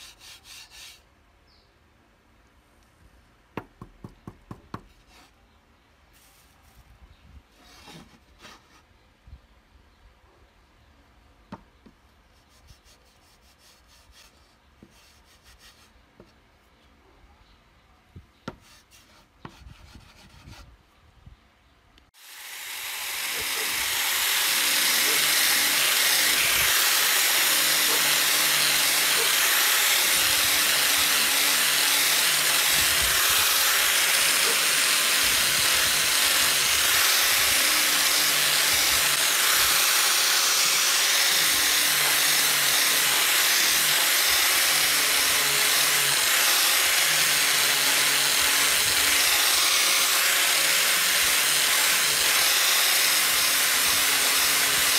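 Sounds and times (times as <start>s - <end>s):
angle grinder sanding wood: 0.0s - 1.0s, 22.2s - 54.9s.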